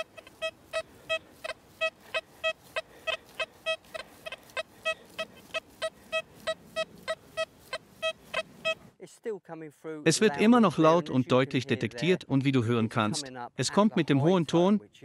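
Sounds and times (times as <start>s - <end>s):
metal detector short beeps: 0.0s - 8.9s.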